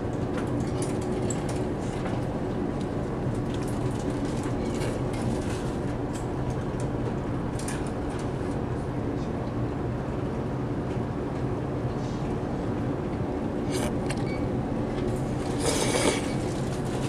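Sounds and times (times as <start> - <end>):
ship engines droning: 4.4 - 17.0.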